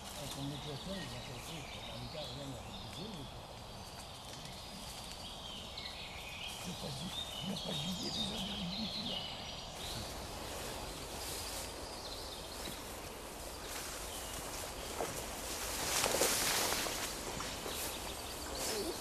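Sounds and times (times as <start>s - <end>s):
faint low voice: 0.0s - 3.5s, 4.3s - 5.1s, 6.5s - 10.1s, 18.5s - 19.0s
birds singing: 0.0s - 19.0s
footsteps through dry leaves: 9.8s - 19.0s.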